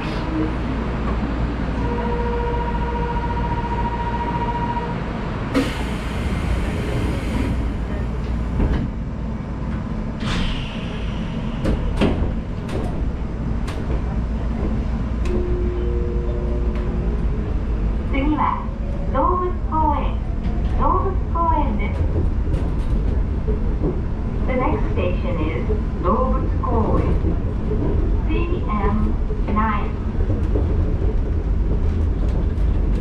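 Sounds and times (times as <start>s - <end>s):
train traction tone: 10.2s - 33.0s.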